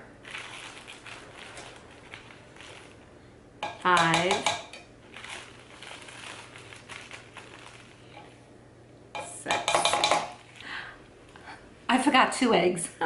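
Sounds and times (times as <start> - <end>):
spoon tapping against a cup: 3.6 - 4.7.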